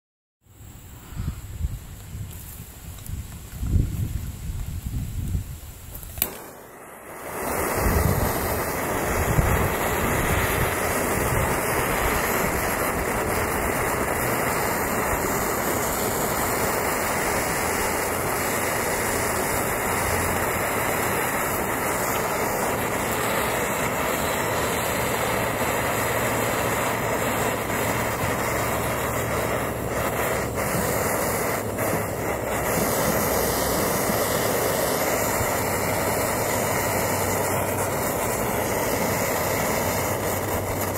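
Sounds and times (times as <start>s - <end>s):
gas torch flame hissing: 0.6s - 40.9s.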